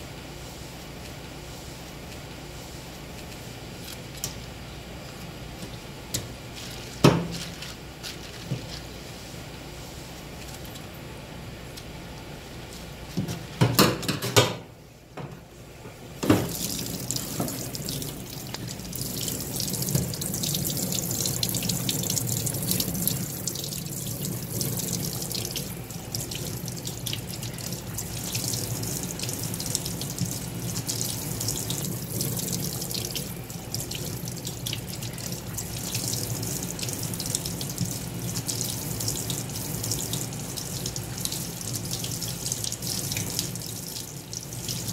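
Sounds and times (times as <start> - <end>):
knocks and clatters in steel sink: 13.2 - 15.3, 16.2 - 16.6
tap running into sink: 16.2 - 18.7, 19.8 - 20.3.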